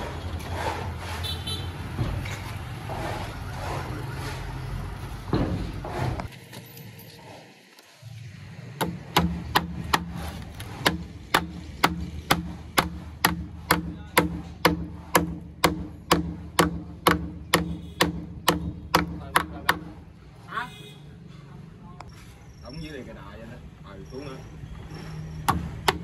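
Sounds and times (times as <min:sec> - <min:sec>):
hammer striking wooden board: 0:08.8 - 0:20.0, 0:25.5 - 0:26.0.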